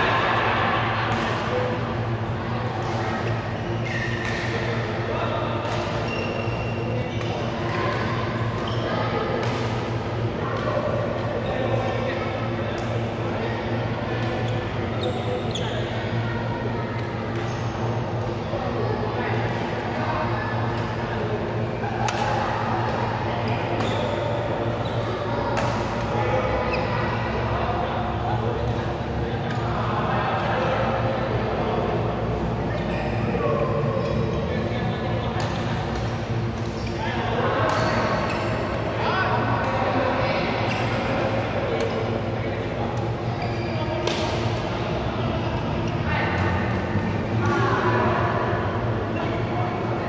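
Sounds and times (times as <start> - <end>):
steady low hum: 0.0 - 50.0
rackets hitting shuttlecock: 1.1 - 1.5, 2.8 - 4.8, 5.6 - 8.7, 9.3 - 9.9, 22.0 - 22.4, 44.0 - 44.6
racket hitting shuttlecock: 3.9 - 4.7, 9.4 - 9.9, 22.0 - 22.4, 25.6 - 26.1, 44.0 - 44.6
shoes squeaking on court floor: 6.0 - 7.3, 15.0 - 16.0, 43.4 - 44.2.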